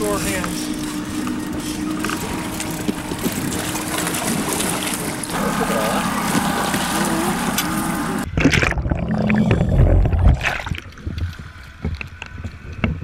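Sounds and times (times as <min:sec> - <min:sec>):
motor noise: 0:00.0 - 0:13.0
underwater rushing and gurgling: 0:00.0 - 0:13.0
wind noise: 0:08.2 - 0:13.0.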